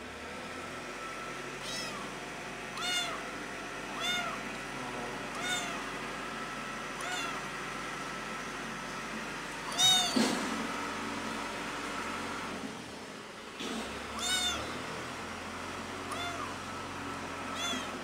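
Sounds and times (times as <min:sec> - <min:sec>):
kitten meowing: 0:01.6 - 0:02.1, 0:02.8 - 0:03.3, 0:03.9 - 0:04.4, 0:05.3 - 0:05.9, 0:07.0 - 0:07.4, 0:09.7 - 0:10.2, 0:14.2 - 0:14.8, 0:16.1 - 0:16.6, 0:17.5 - 0:18.0.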